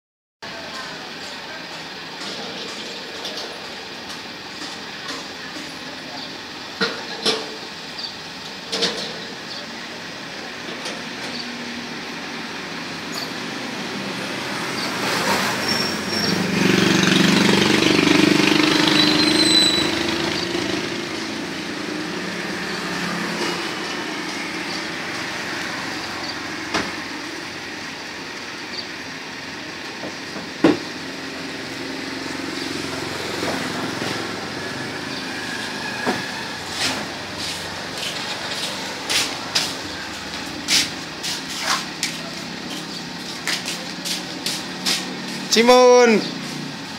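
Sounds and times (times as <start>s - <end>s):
street traffic: 0.4s - 46.9s
vehicle passing close: 11.3s - 29.6s, 30.8s - 46.9s.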